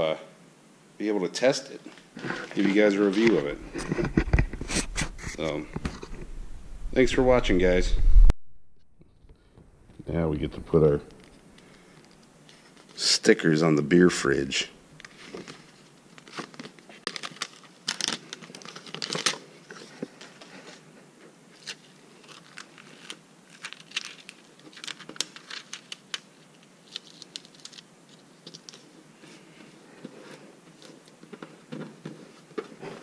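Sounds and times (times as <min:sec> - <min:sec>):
plastic sticker sheet crinkling: 0:16.1 - 0:20.5, 0:21.6 - 0:28.9.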